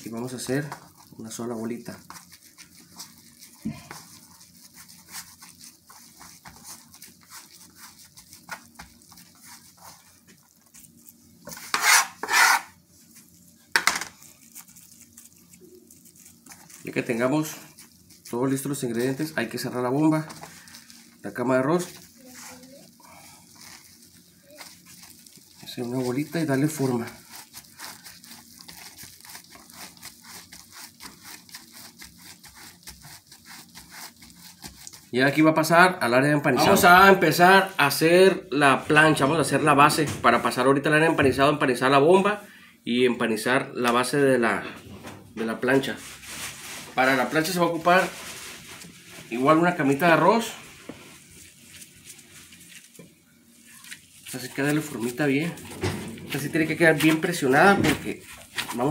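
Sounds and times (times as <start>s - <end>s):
wet squishing of kneaded food: 0.0s - 11.7s, 12.7s - 38.2s, 45.4s - 58.9s
cling film crinkling: 14.1s - 35.2s.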